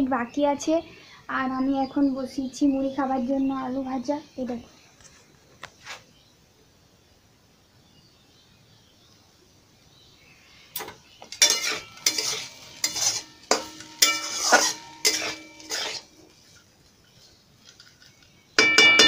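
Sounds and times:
metal pan clanking: 0:10.8 - 0:16.2, 0:18.6 - 0:19.0
metal spatula scraping in pan: 0:10.8 - 0:19.0.

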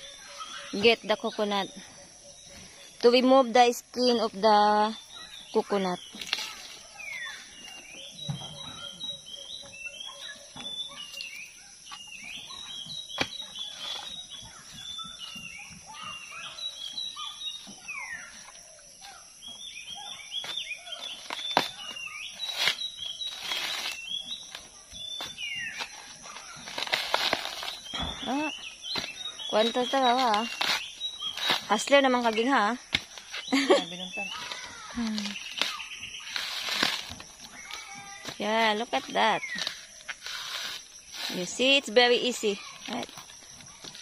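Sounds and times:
birds chirping: 0:00.0 - 0:44.0
high insect drone: 0:00.0 - 0:44.0
coconut husk tearing: 0:13.1 - 0:14.6, 0:20.4 - 0:32.0, 0:34.3 - 0:41.6
coconut husk cracking: 0:20.4 - 0:28.3, 0:28.9 - 0:32.0, 0:34.3 - 0:38.4.

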